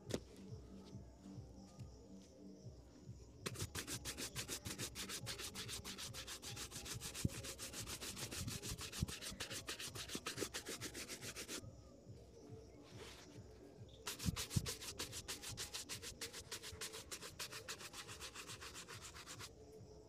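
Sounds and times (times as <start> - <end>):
shoe brush buffing leather: 3.5 - 11.6, 14.1 - 19.5.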